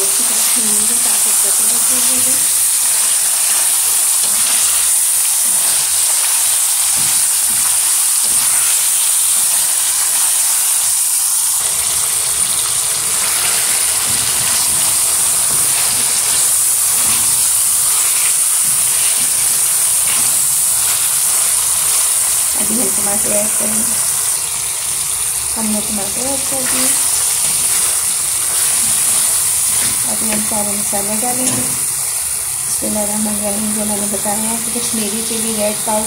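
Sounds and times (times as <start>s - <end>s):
chicken sizzling in hot oil: 0.0s - 36.0s
wooden spatula scraping: 13.2s - 22.4s, 26.6s - 30.5s.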